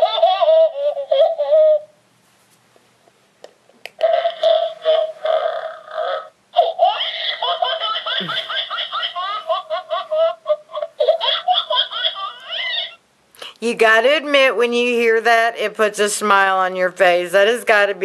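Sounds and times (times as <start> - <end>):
toy playing recorded laugh: 0.0 - 1.9, 4.0 - 13.0.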